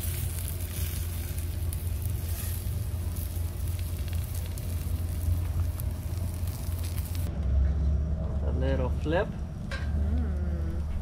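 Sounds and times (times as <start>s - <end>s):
food sizzling on a grill: 0.0s - 7.3s
wood fire crackling: 0.0s - 7.4s
low rumble: 0.0s - 11.0s.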